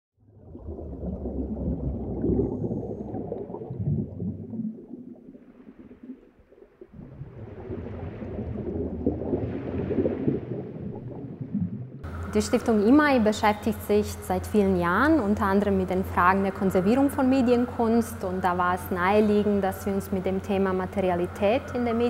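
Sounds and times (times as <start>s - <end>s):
low rumbling ambient drone: 7.0s - 22.0s.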